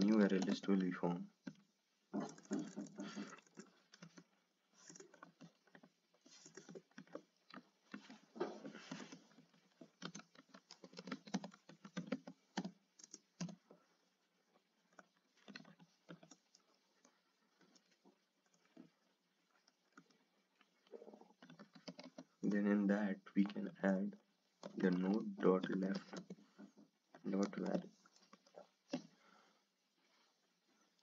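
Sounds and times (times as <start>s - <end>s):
typing on computer keyboard: 9.9s - 13.6s.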